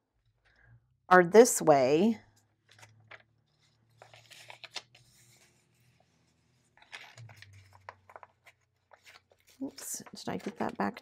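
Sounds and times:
paper rustling and sliding: 2.6 - 10.9.

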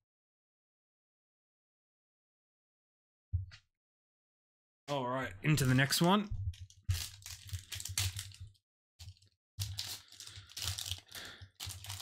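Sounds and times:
foil wrapper tearing and crinkling: 6.9 - 12.0.

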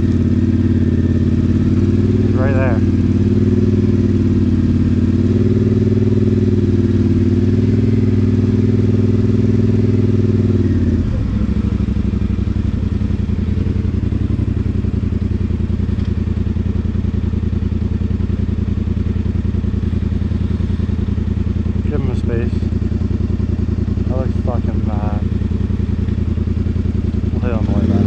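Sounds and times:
atv engine running: 0.0 - 28.0.

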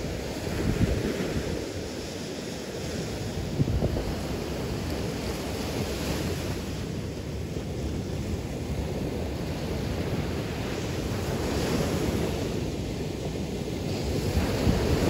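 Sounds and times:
surf washing on sandy beach: 0.0 - 15.0
wind buffeting microphone: 0.0 - 15.0.

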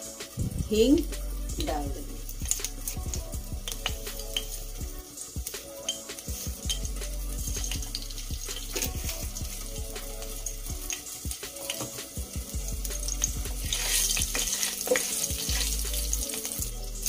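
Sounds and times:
hot oil sizzling: 0.0 - 17.0
spatula scraping a pan: 13.7 - 16.5.

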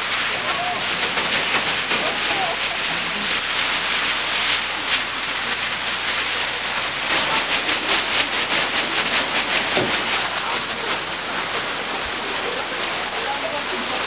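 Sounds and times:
paper crumpling and tearing: 0.3 - 14.0.

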